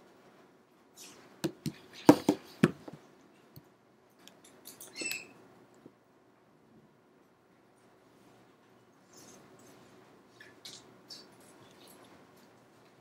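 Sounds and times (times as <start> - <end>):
brief squeak: 4.8 - 5.4.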